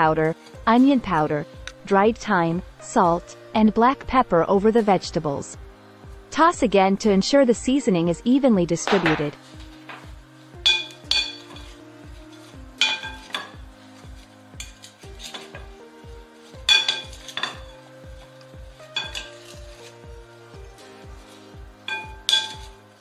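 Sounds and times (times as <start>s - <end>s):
background music with steady beat: 0.0s - 23.0s
wooden spoons clinking glass bowl: 10.7s - 11.8s, 12.8s - 13.6s, 16.6s - 17.9s, 18.9s - 19.8s, 21.9s - 22.8s.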